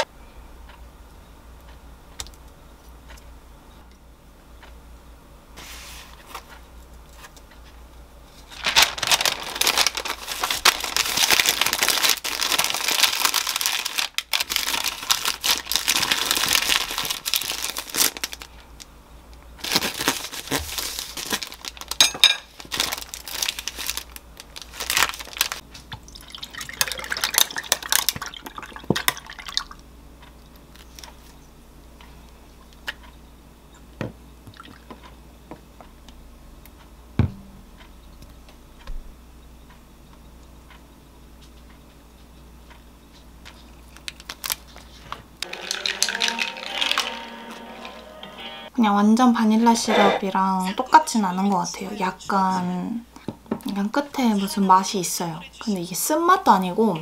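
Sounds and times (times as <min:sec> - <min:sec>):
baking paper crinkling: 0:08.3 - 0:18.7, 0:19.6 - 0:25.8, 0:43.5 - 0:47.1.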